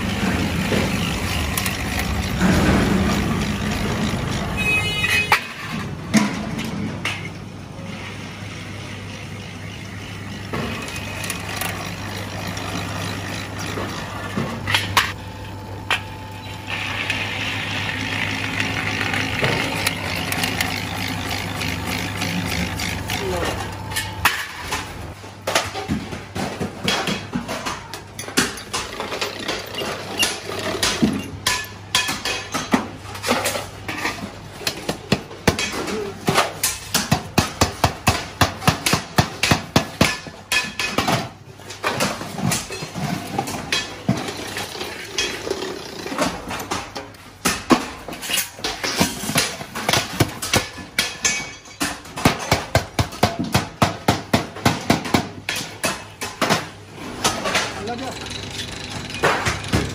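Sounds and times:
hammer striking metal buckets: 0:18.3 - 0:59.9.

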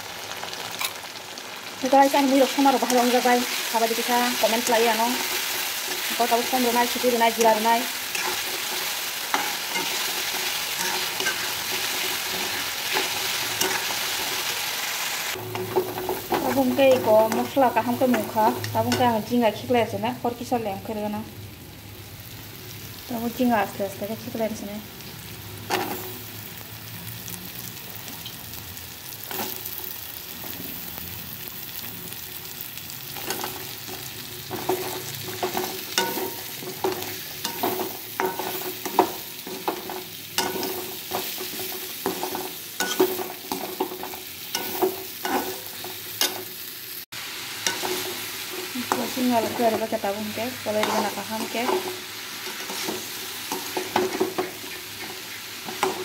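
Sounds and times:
frying sizzle: 0:00.0 - 0:56.0
metal spoon scraping a wok: 0:05.2 - 0:14.5, 0:33.2 - 0:46.5, 0:50.8 - 0:56.0.

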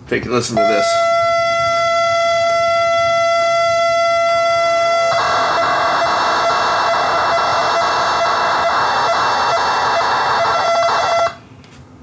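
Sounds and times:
cassette data signal warbling: 0:04.2 - 0:11.4.

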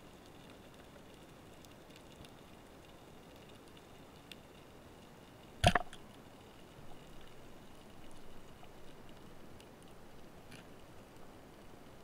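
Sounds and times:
faint clicks: 0:00.0 - 0:12.0
speargun crack underwater: 0:05.6 - 0:06.0.

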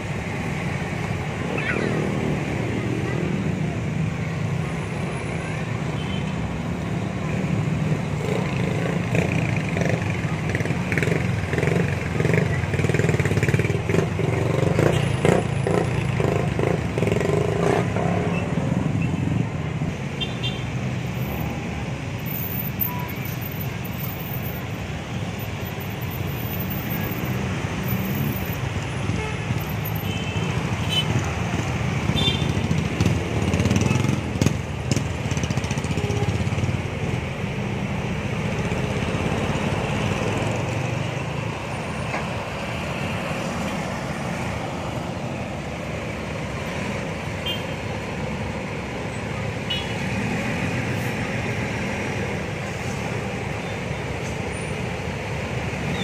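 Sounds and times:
bus diesel engines rumbling: 0:00.0 - 0:56.0
street traffic noise: 0:00.0 - 0:56.0.

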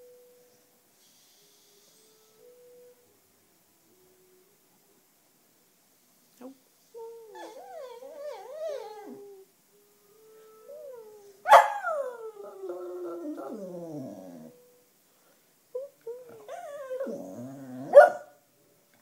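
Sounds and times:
dog howling: 0:10.2 - 0:14.6, 0:15.8 - 0:18.3.

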